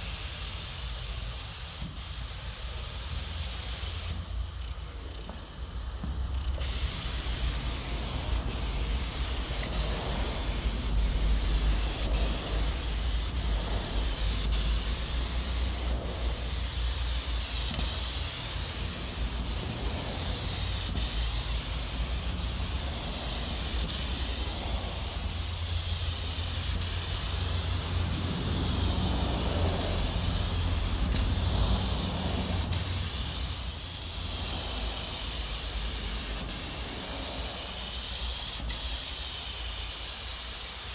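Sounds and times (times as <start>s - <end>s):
paint spray gun hissing: 0.0s - 4.3s, 6.6s - 40.9s
low steady rumble: 4.3s - 37.8s.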